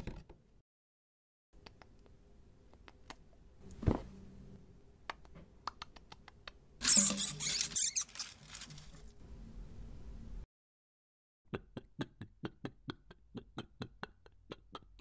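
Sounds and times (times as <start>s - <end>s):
rodent-like scrabbling and rustling: 6.8s - 9.1s.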